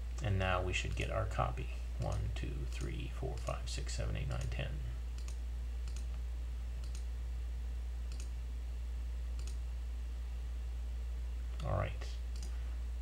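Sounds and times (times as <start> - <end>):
computer mouse clicks: 5.2 - 6.2, 6.8 - 7.1, 8.1 - 8.3, 9.4 - 9.6, 11.6 - 12.6.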